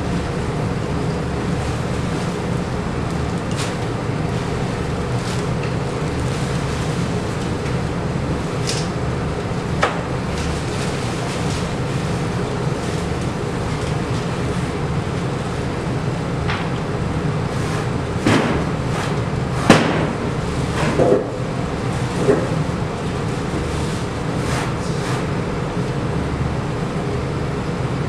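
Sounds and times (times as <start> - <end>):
low room hum: 0.0 - 28.0.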